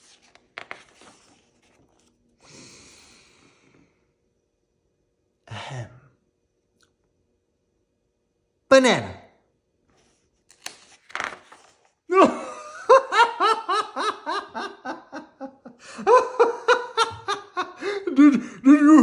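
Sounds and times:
person laughing: 12.1s - 19.0s.

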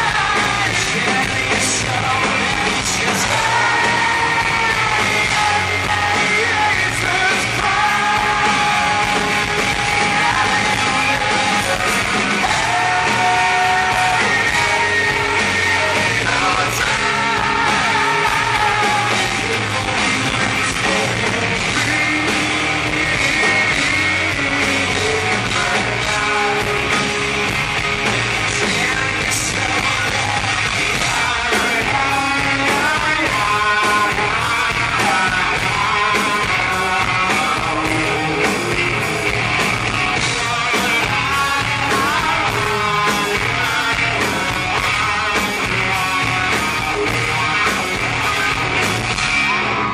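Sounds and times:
man singing: 0.0s - 27.6s, 28.4s - 48.9s
drums: 0.0s - 49.9s
electric guitar: 0.0s - 49.9s.

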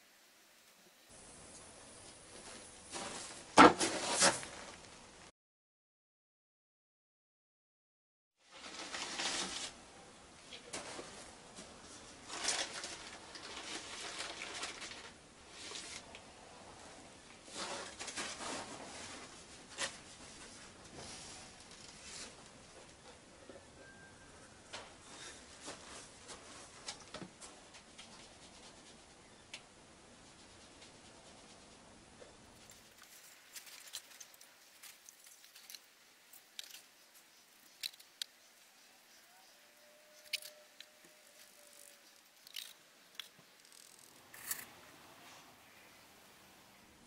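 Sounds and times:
paper sack rustling: 8.5s - 9.8s, 12.2s - 16.0s, 17.5s - 20.5s, 32.6s - 37.2s
steel bowl clicks and scrapes: 40.1s - 44.7s.

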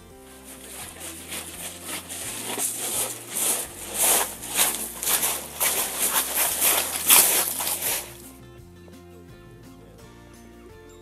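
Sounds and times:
footsteps crunching on pebbles: 0.3s - 8.3s.

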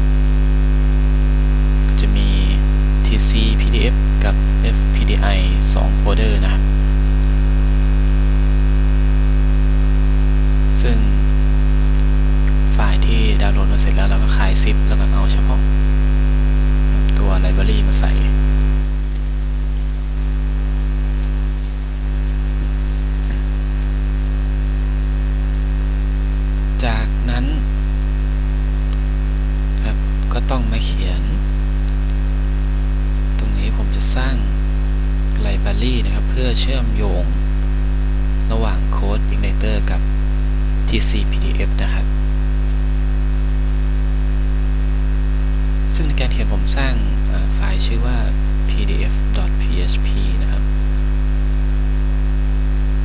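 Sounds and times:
electrical mains hum: 0.0s - 53.0s
soft voice sounds: 1.8s - 6.7s, 10.7s - 11.4s, 12.5s - 15.8s, 16.8s - 18.4s, 26.8s - 27.7s, 29.7s - 32.0s, 33.4s - 34.6s, 35.4s - 37.4s, 38.5s - 40.0s, 40.9s - 42.2s, 45.9s - 50.7s.

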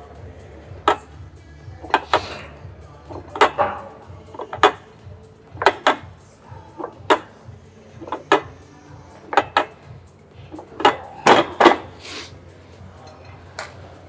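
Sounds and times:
gym weights clanking: 3.1s - 4.9s, 10.6s - 12.0s.

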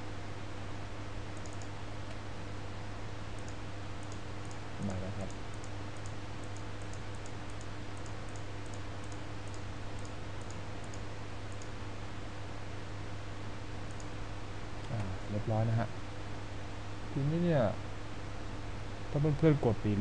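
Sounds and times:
electrical hum: 0.0s - 20.0s
computer mouse clicking: 1.4s - 2.2s, 3.4s - 11.7s, 13.9s - 14.1s.

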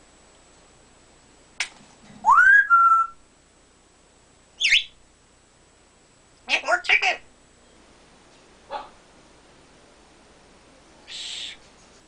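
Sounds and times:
parrot whistling: 2.2s - 3.2s, 4.6s - 5.0s
high parrot chirp: 4.6s - 5.0s.

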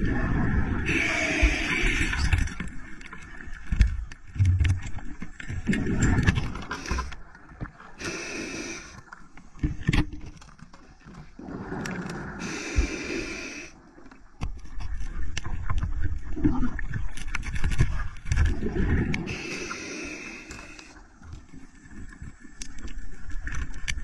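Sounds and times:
underwater rumble of moving water: 0.0s - 24.0s
hiss: 0.9s - 2.4s, 8.0s - 9.0s, 12.4s - 13.8s, 19.3s - 21.0s.

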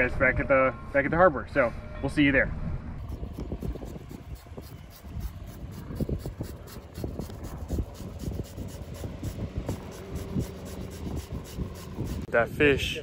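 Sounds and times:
low rumble: 0.0s - 13.0s
fish scaler scraping skin: 3.0s - 12.3s.

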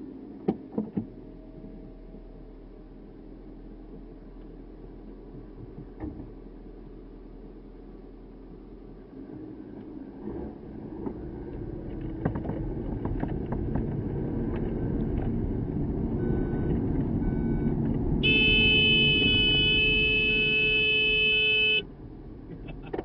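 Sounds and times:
car running: 0.0s - 23.0s
car horn long blast: 18.2s - 21.9s.

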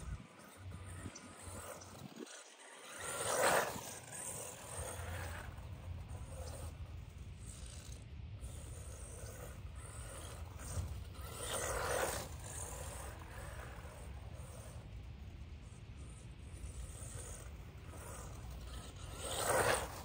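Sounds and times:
toy truck motor whirring: 0.0s - 20.0s.

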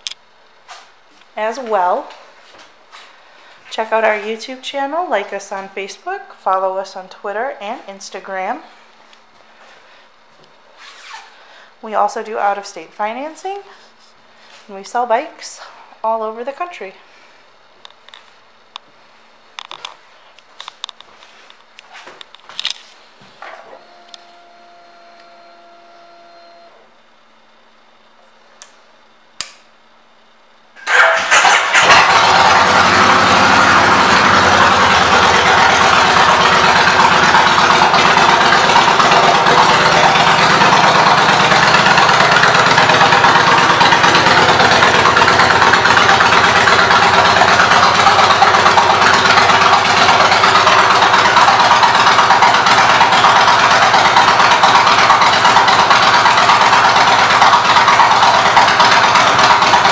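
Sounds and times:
motorcycle engine starting and idling: 23.4s - 27.0s, 30.8s - 59.9s.

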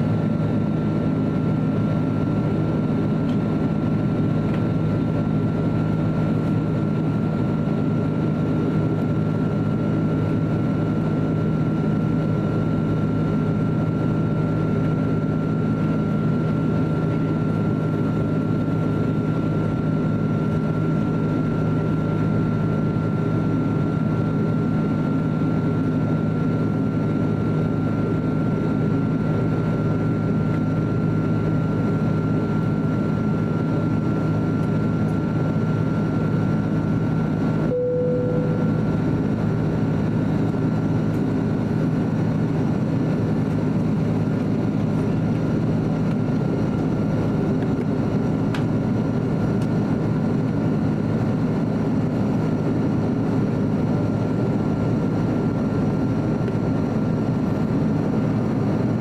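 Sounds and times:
jet engine drone in cabin: 0.0s - 59.0s
thin high whine: 37.6s - 39.2s.

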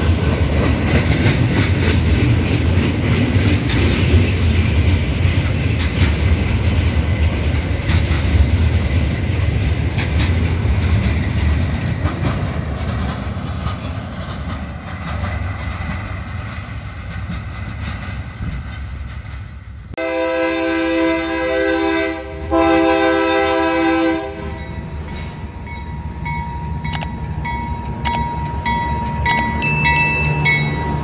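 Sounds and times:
locomotive engine rumbling: 0.0s - 31.0s
train wheel and rail noise: 0.0s - 31.0s
locomotive air horn blasts: 20.0s - 24.6s
sharp clicks: 26.9s - 28.6s.

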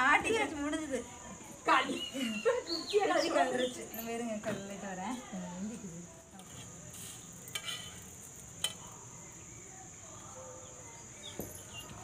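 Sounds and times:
faint sizzle on griddle: 3.0s - 11.8s.

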